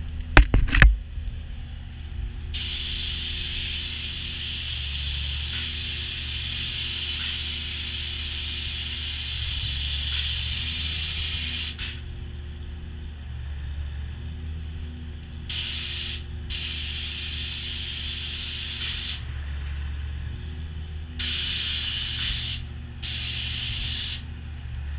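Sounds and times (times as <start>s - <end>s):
low machine hum: 0.0s - 24.9s
spray gun hissing: 2.6s - 12.0s, 15.5s - 19.3s, 21.2s - 24.3s.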